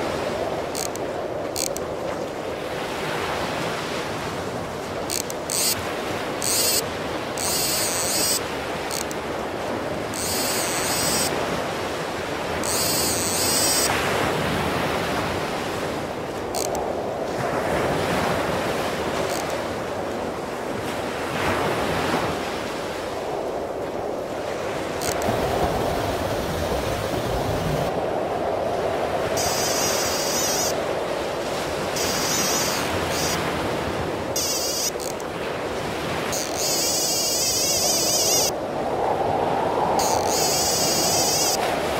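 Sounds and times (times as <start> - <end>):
surf breaking on beach: 0.0 - 41.9
wind on microphone: 0.0 - 41.9
fishing reel drag buzzing: 0.7 - 1.0, 1.6 - 1.8, 5.1 - 5.8, 6.4 - 6.8, 7.4 - 9.2, 10.1 - 11.3, 12.6 - 13.9, 16.6 - 16.8, 19.2 - 19.6, 25.0 - 25.3, 29.4 - 30.8, 32.0 - 33.4, 34.4 - 35.2, 36.3 - 38.5, 40.0 - 41.6.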